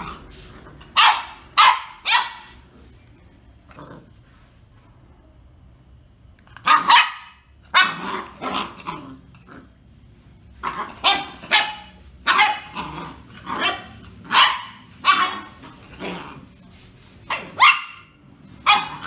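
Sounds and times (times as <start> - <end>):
puppy barking in high yaps: 0.9 - 2.6, 6.6 - 8.8, 10.8 - 12.8, 13.5 - 15.7, 17.3 - 19.0.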